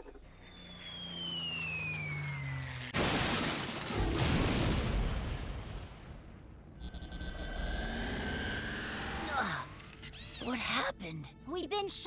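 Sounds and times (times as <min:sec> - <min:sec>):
cartoon falling whistle: 0:00.4 - 0:02.6
loud rumbling crash: 0:03.0 - 0:06.4
low descending drone: 0:06.8 - 0:10.1.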